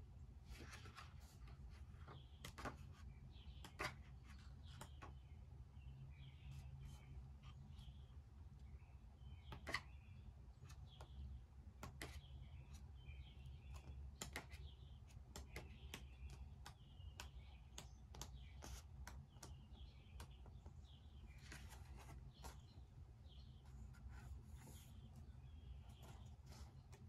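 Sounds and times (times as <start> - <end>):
small clicks and taps: 15.3 - 20.5.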